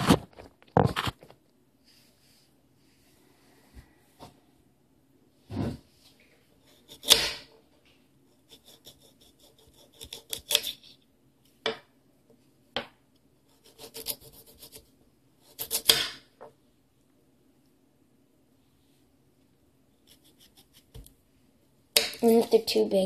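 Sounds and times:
knife sawing through carrot: 0:08.3 - 0:10.8, 0:13.5 - 0:14.8.

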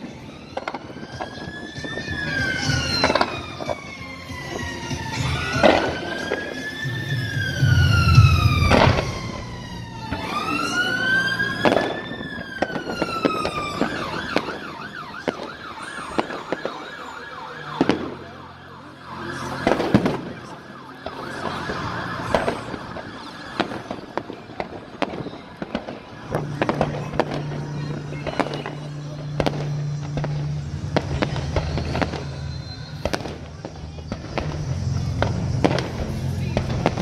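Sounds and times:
emergency vehicle siren: 0:00.0 - 0:37.0
fireworks banging: 0:00.0 - 0:37.0
deep firework boom: 0:07.2 - 0:09.7, 0:21.7 - 0:37.0.

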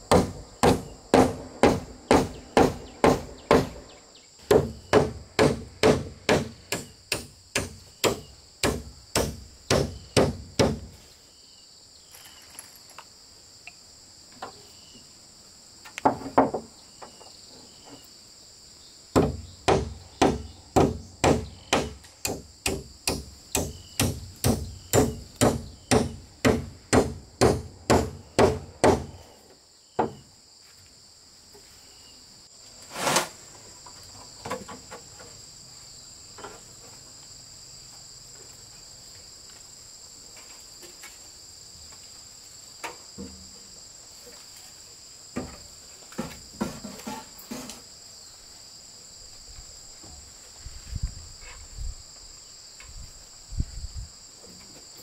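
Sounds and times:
crickets chirping: 0:00.0 - 0:55.0
hammer strikes: 0:00.1 - 0:03.8, 0:04.5 - 0:10.9, 0:19.2 - 0:29.1.

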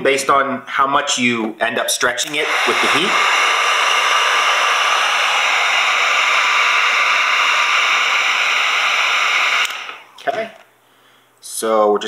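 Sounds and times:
heat gun blower hissing: 0:02.2 - 0:10.2.

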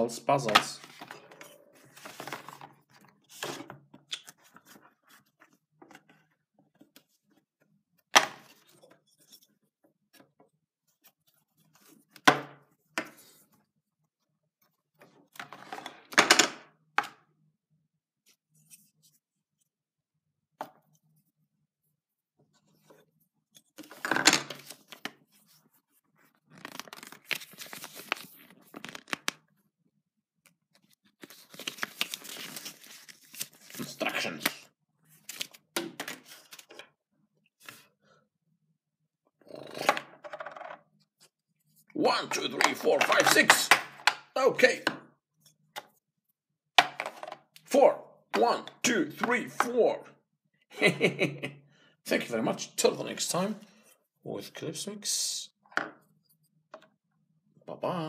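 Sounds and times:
cardboard rustling: 0:00.8 - 0:03.7.

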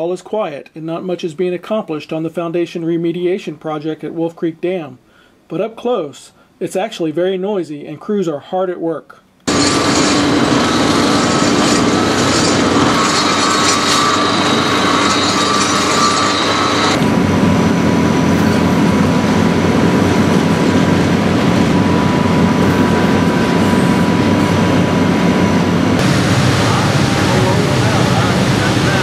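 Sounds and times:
drilling rig machinery din: 0:09.5 - 0:29.0.

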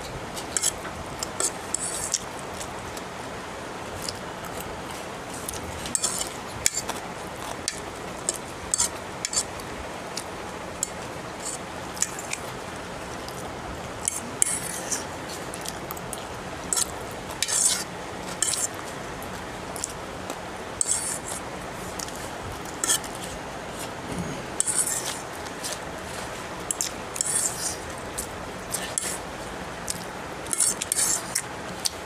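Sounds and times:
steady low hiss: 0:00.0 - 0:32.0
fork scraping and clicking on plate: 0:00.4 - 0:02.3, 0:05.5 - 0:09.5, 0:14.0 - 0:15.0, 0:16.7 - 0:18.7, 0:20.8 - 0:21.4, 0:22.8 - 0:23.3, 0:24.6 - 0:25.8, 0:26.7 - 0:27.8, 0:28.7 - 0:29.2, 0:29.9 - 0:32.0.

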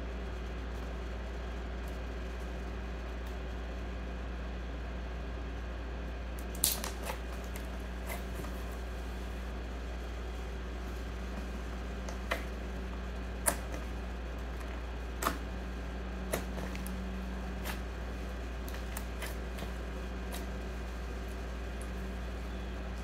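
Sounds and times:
steady low hum: 0:00.0 - 0:23.0
slime popping and clicking: 0:06.4 - 0:07.6.

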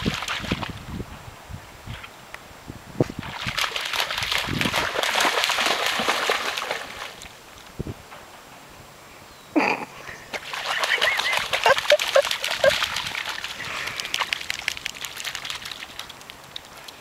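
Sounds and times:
wet mud splashing and squelching: 0:03.2 - 0:07.3, 0:10.4 - 0:17.0.

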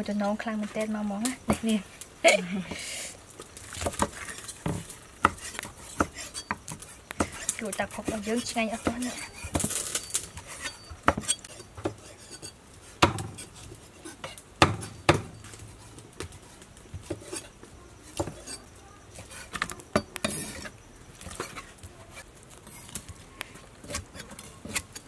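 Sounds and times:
knife chopping on wooden block: 0:14.3 - 0:15.3.

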